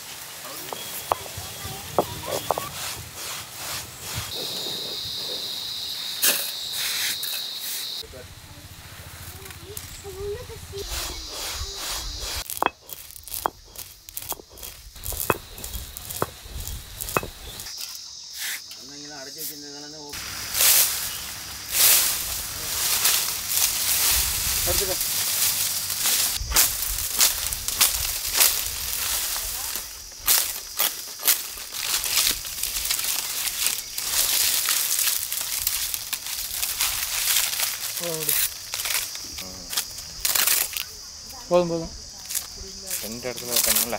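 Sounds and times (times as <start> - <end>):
dry palm fronds rustling: 0.0 - 5.1, 20.2 - 43.9
peppercorns cracking under stone roller: 12.4 - 17.7, 21.8 - 40.9, 42.3 - 43.9.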